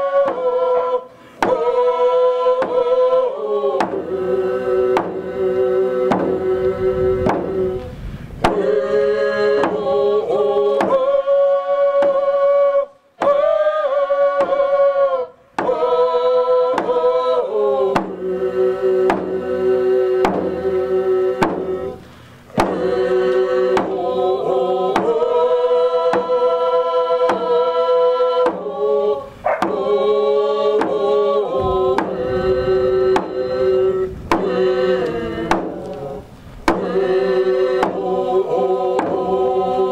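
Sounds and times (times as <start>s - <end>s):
singers chanting in unison: 0.0s - 39.9s
frame drums beating steadily: 3.8s - 6.6s, 7.2s - 7.8s, 17.9s - 18.4s, 19.0s - 23.0s, 23.7s - 25.4s, 28.5s - 28.7s, 29.5s - 37.2s, 37.8s - 39.6s.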